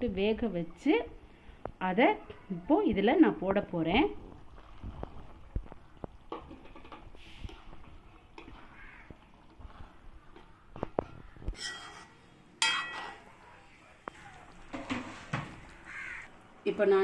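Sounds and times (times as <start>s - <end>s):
spoon scraping a pan: 6.4s - 13.3s
crow cawing: 8.7s - 9.2s, 15.8s - 16.3s.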